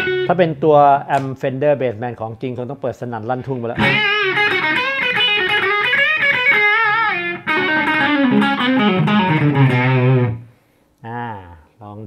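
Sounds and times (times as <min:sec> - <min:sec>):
overdriven electric guitar lead: 0:00.0 - 0:00.4, 0:03.8 - 0:10.5.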